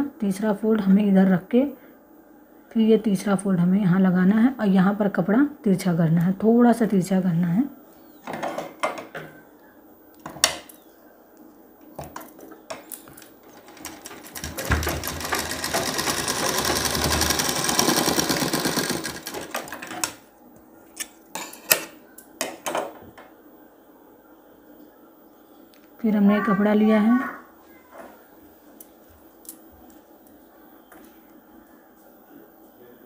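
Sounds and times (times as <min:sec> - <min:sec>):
sewing machine stitching: 0:13.5 - 0:20.1.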